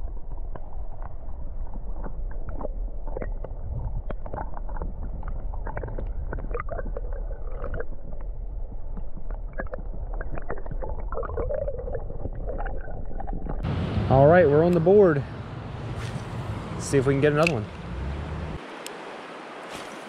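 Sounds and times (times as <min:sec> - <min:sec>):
small underwater clicks and crackles: 0:00.0 - 0:13.6
muffled underwater current rumble: 0:00.0 - 0:13.7.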